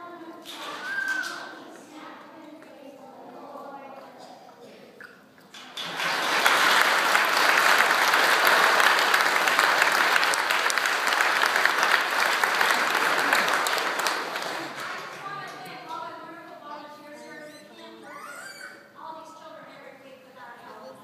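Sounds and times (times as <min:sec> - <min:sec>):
congregation applauding: 0:05.5 - 0:15.6
hands clapping close by: 0:05.5 - 0:15.7.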